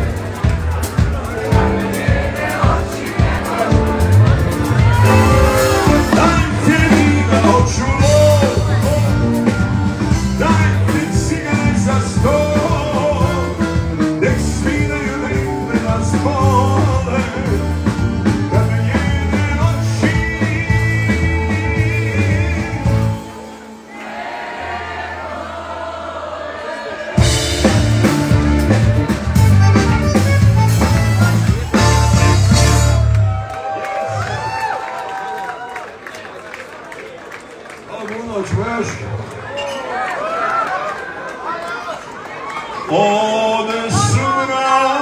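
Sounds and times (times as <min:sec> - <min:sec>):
live band playing: 0:00.0 - 0:23.9, 0:27.1 - 0:34.6
man singing: 0:05.0 - 0:23.2, 0:42.9 - 0:45.0.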